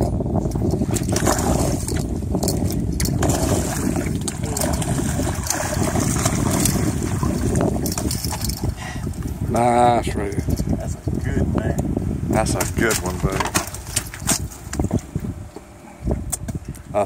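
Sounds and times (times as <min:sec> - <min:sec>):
steady low rumble: 0:00.0 - 0:12.5.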